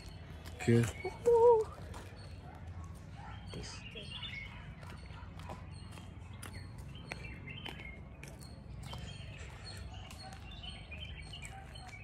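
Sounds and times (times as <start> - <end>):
forest birds chirping: 0.0 - 12.0.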